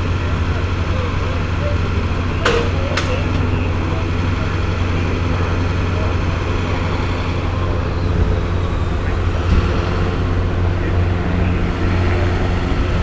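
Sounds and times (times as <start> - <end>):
idling vehicle engines: 0.0 - 13.0
car driving past: 5.6 - 12.7.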